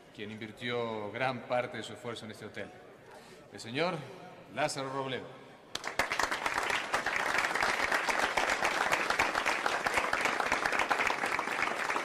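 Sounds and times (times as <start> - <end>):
crowd applauding: 5.7 - 12.0.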